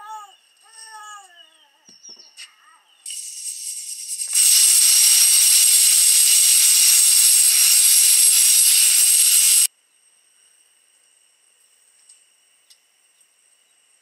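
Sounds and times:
loud steady hiss: 3.0 - 11.8.

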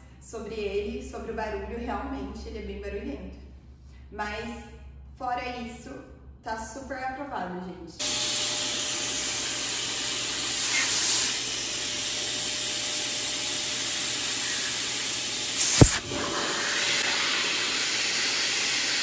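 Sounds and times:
vacuum blower air rushing: 8.0 - 19.0
balloon bursting bang: 15.6 - 17.1.

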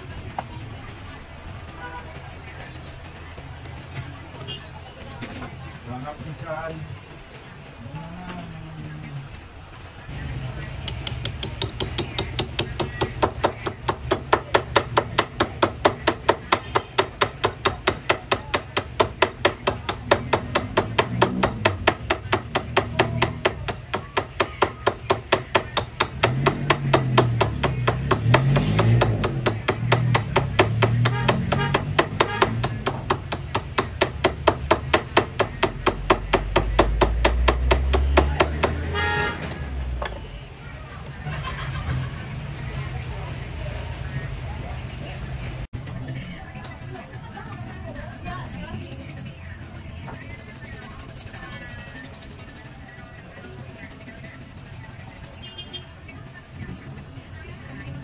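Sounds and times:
hammer beating on metal: 10.8 - 39.0.

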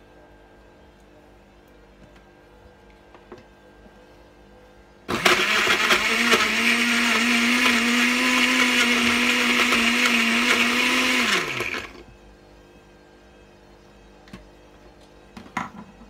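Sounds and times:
blender motor running: 5.1 - 12.0.

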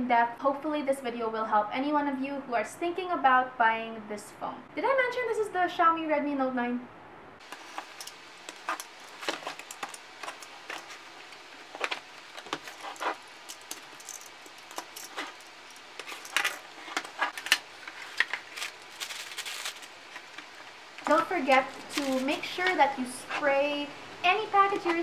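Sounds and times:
cardboard being handled: 7.4 - 22.8.

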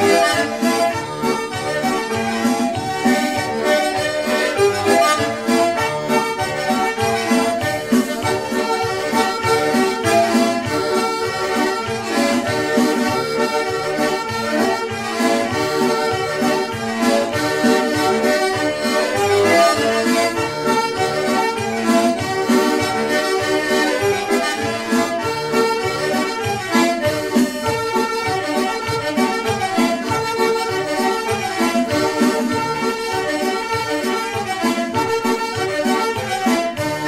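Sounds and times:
instrumental background music: 0.0 - 37.0.

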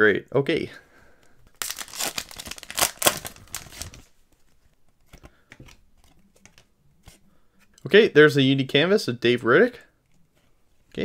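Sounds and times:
foil wrapper tearing and crinkling: 1.6 - 4.0.

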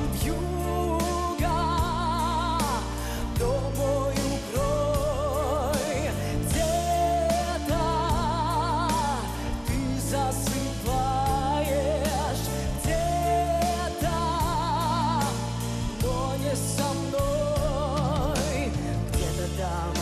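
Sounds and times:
live band playing: 0.0 - 20.0
steady drum beat: 0.0 - 20.0
woman singing a slow ballad: 0.0 - 20.0.

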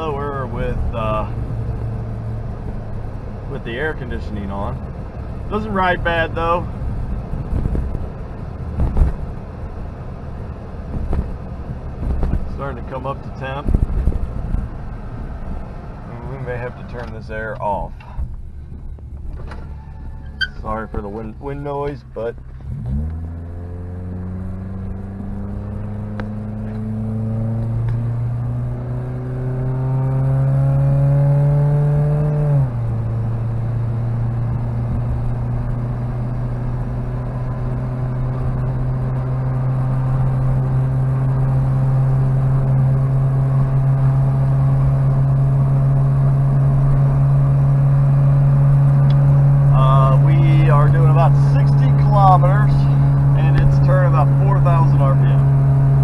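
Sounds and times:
car engine accelerating: 0.0 - 56.0
wind noise: 6.9 - 9.5, 10.8 - 12.5, 13.6 - 15.7.

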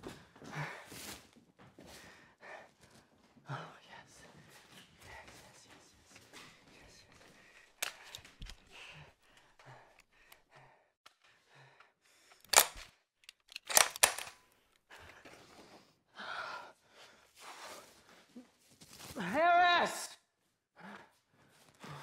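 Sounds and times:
metallic gun clicks and clacks: 7.8 - 8.7, 12.4 - 14.5.

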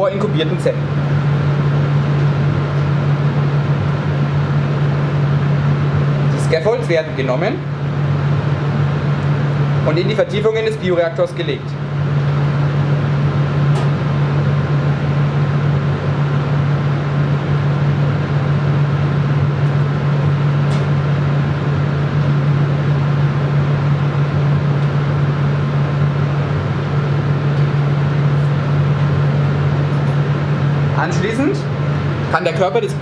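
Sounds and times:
cabinet fan humming: 0.0 - 33.0.

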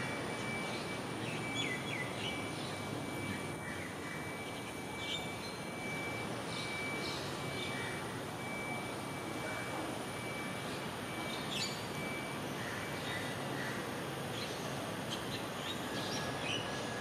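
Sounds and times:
urban park background noise: 0.0 - 17.0
small birds chirping: 0.3 - 8.0, 10.7 - 12.0, 12.6 - 17.0.

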